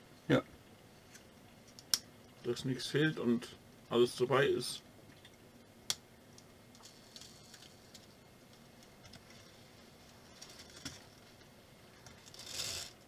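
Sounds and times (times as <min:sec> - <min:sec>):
plastic toy car clicks and rattle: 0:12.3 - 0:13.0.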